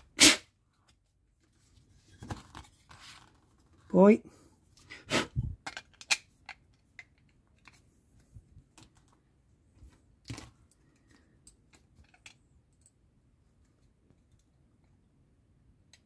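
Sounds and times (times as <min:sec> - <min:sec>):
small clicks and taps of handling parts: 0:05.6 - 0:15.1, 0:15.8 - 0:16.0.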